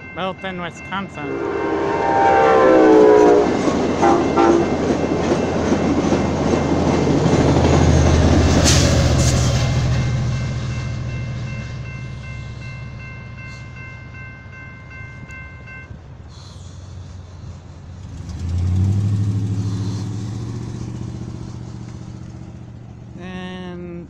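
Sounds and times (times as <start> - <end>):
railroad crossing bell dinging: 0.0 - 7.1, 9.6 - 16.0
passing train rumble: 0.0 - 23.4
motor vehicle engine: 16.4 - 24.0.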